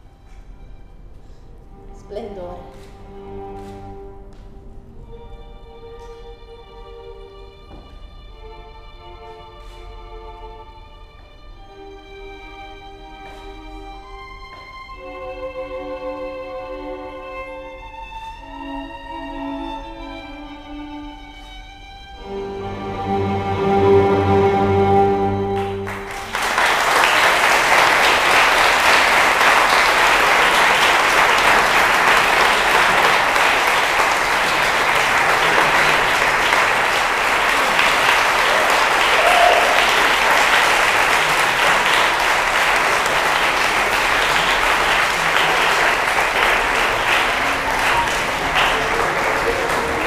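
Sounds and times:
string music: 0.0s - 50.0s
audience applauding: 25.4s - 50.0s.

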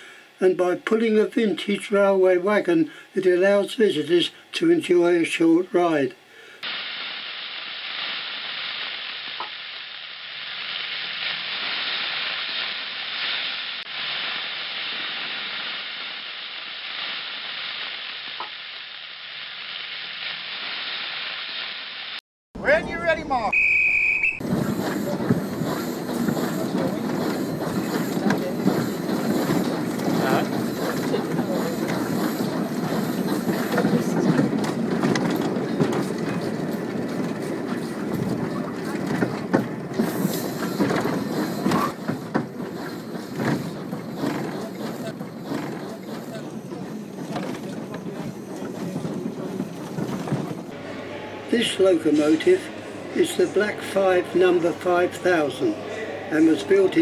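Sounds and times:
steam hissing from locomotive: 0.0s - 0.4s, 6.2s - 22.2s, 24.4s - 55.6s
wheels clicking on rails: 24.4s - 50.8s.

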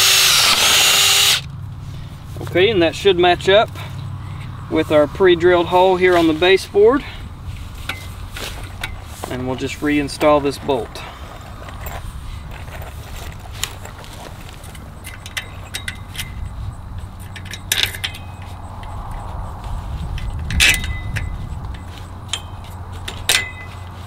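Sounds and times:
steady low rumble: 0.1s - 24.0s
small metal clicks and clinks: 13.6s - 19.3s, 20.1s - 23.8s.

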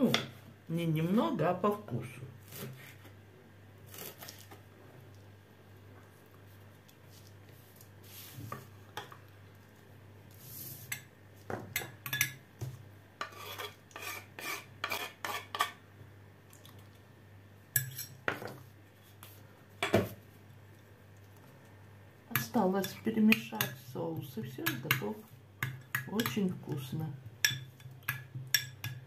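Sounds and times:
knife tapping against glass bowl: 24.7s - 26.4s, 27.4s - 29.0s.

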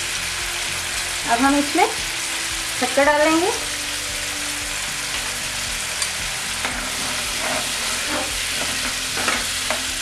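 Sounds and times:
chutney sizzling and bubbling in pan: 0.0s - 10.0s.

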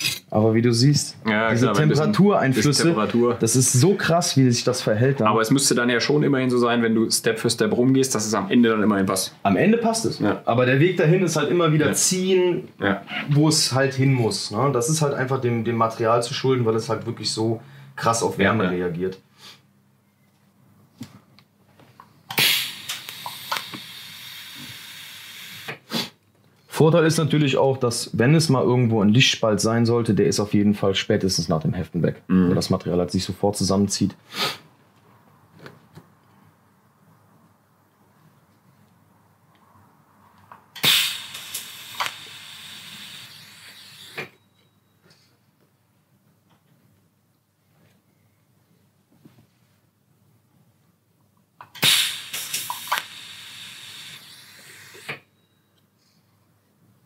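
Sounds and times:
welding arc crackling and hissing: 22.3s - 25.8s, 40.8s - 44.3s, 51.8s - 55.2s.

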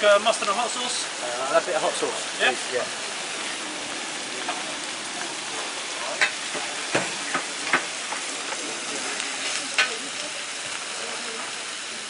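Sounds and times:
food frying sizzle: 0.0s - 12.0s
sharp clicks and knocks: 6.2s - 8.2s.

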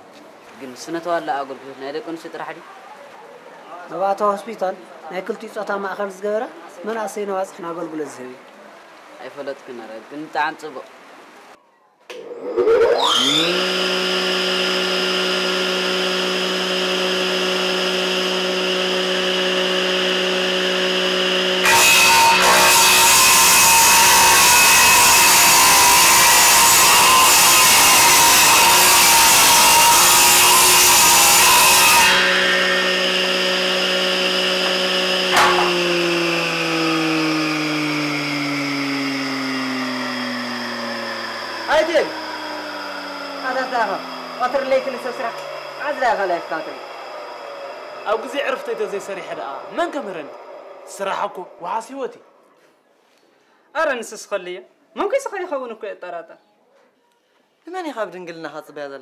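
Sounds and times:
saw cutting through wood: 12.1s - 52.1s
electric saw motor humming: 12.1s - 52.2s.

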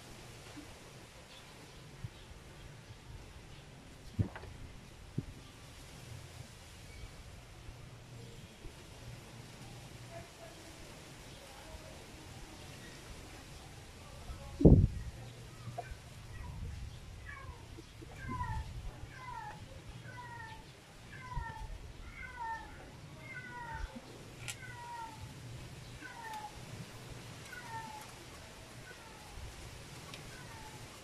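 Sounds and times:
small animal mewing cries: 17.2s - 25.3s, 27.4s - 28.2s.

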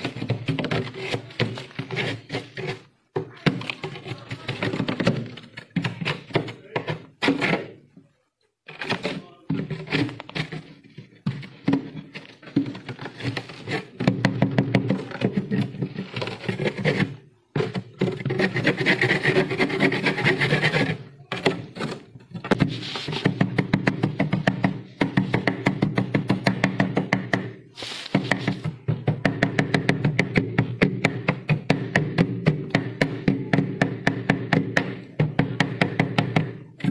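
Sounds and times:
scraper crunching freezer frost: 27.8s - 28.6s.

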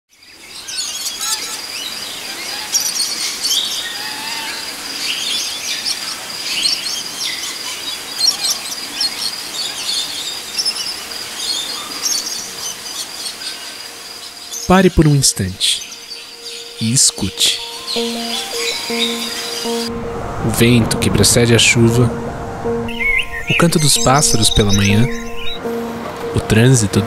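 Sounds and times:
birds chirping: 0.4s - 27.0s
high-pitched insect drone: 15.6s - 21.5s.

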